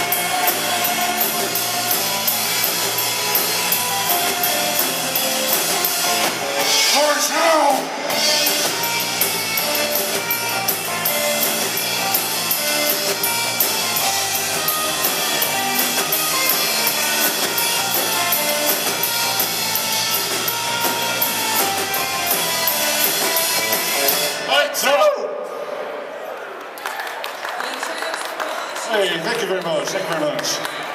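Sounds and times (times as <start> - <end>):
drum kit beat: 0.0 - 24.5
electric bass: 0.0 - 24.5
electric guitar: 0.0 - 24.5.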